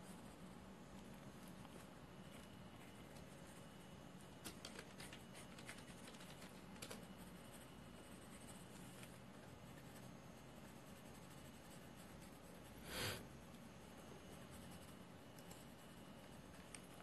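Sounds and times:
low room hum: 0.0s - 17.0s
pencil scratching on paper: 4.9s - 13.2s, 13.8s - 17.0s.

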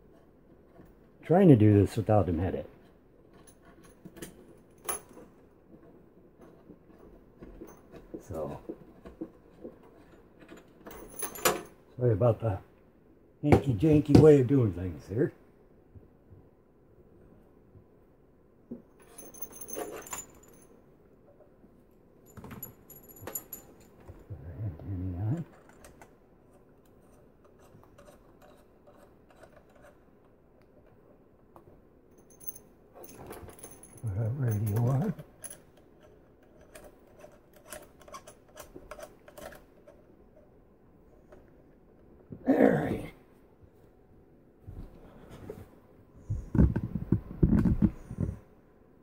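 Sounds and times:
metal connectors clinking: 32.2s - 40.0s.

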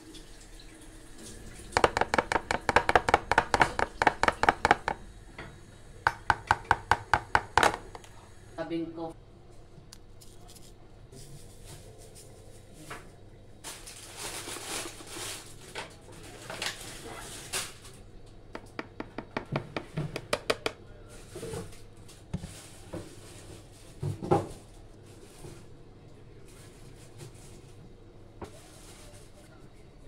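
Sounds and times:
measuring spoon tapping plastic tub: 1.8s - 5.0s, 6.0s - 8.1s, 18.6s - 20.8s
paper sachet rustling: 13.6s - 17.8s.

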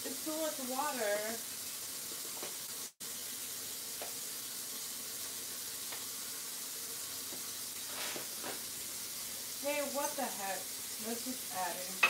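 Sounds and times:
food sizzling in a pan: 0.0s - 12.0s.

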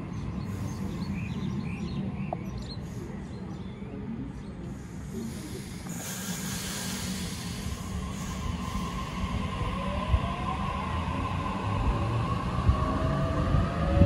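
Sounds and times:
birds chirping: 0.0s - 5.5s
electric train rushing: 5.9s - 14.0s.

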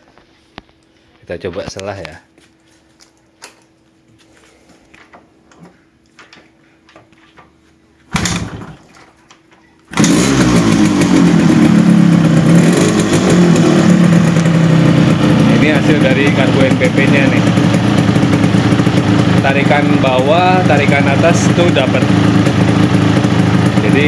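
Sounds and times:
two-stroke engine running: 8.1s - 8.8s, 9.9s - 24.0s
motorcycle kick start: 8.1s - 9.2s, 9.9s - 19.4s.

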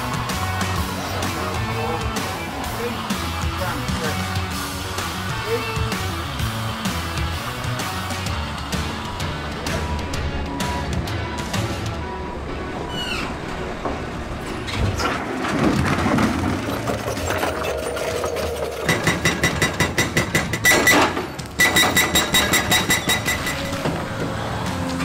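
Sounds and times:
heavy machinery engine: 0.0s - 25.0s
hydraulic breaker hammering rock: 15.9s - 24.5s.

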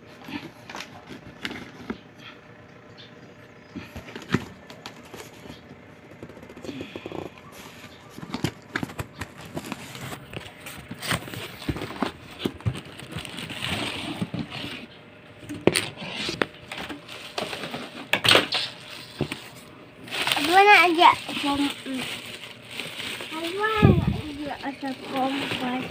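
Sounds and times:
cardboard flaps scraping: 7.5s - 15.0s
plastic wrapping rustling: 7.6s - 14.9s, 15.6s - 25.9s.

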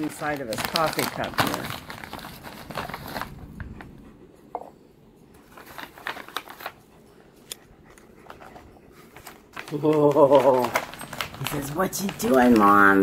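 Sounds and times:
plastic bag crinkling: 0.0s - 3.7s, 5.4s - 6.8s, 9.0s - 13.0s.

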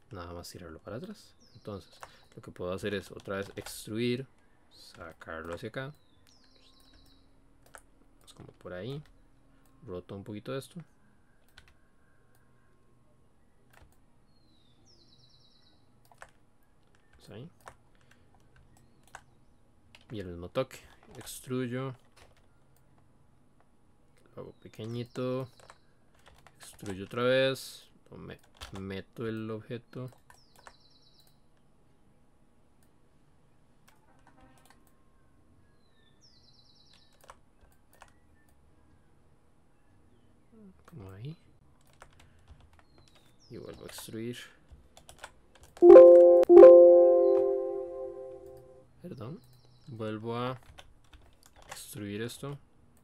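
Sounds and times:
keyboard and mouse clicks: 2.0s - 3.8s, 6.8s - 9.2s, 11.4s - 12.4s, 16.0s - 19.3s, 36.9s - 38.6s, 41.8s - 44.1s, 45.0s - 48.6s
high chirp ending in a trill: 45.8s - 48.7s.

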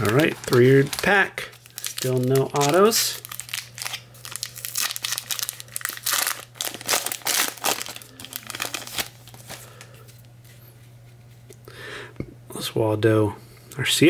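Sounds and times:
foil wrapper crinkling and tearing: 0.0s - 10.3s.

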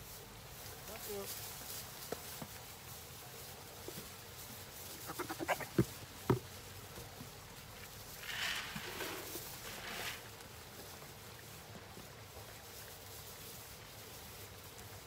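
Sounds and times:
goat bleating: 5.0s - 5.9s
feed pouring into feeder: 8.2s - 10.3s.

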